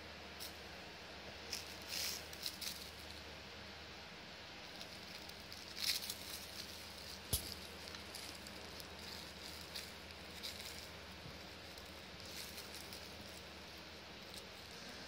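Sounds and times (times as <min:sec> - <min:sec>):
foil toy crinkling: 0:01.5 - 0:03.2, 0:04.7 - 0:14.9.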